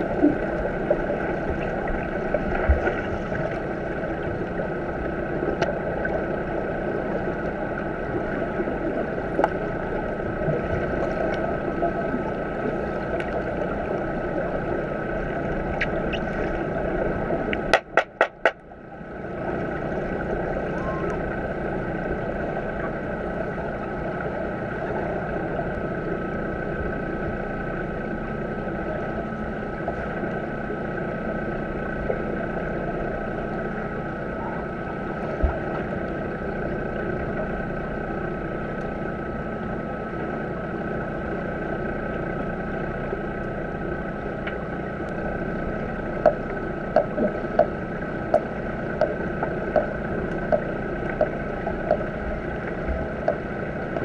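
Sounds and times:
underwater hum and hiss: 0.0s - 54.0s
constant tones: 41.8s - 54.0s.

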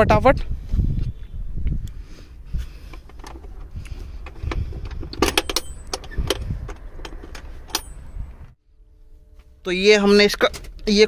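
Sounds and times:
seat latch clicks and knocks: 3.0s - 8.0s.

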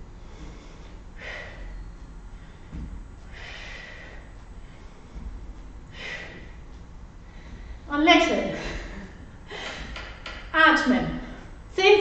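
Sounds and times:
woman breathing out hard: 0.3s - 1.8s, 3.3s - 5.0s, 5.9s - 6.6s
faint low thumps: 1.9s - 3.5s.

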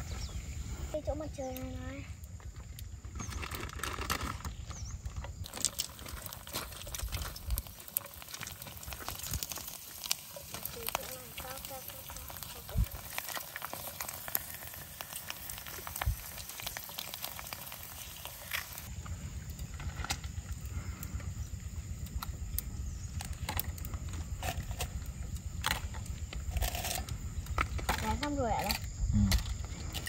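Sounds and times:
chips sizzling in hot oil: 5.4s - 18.9s.

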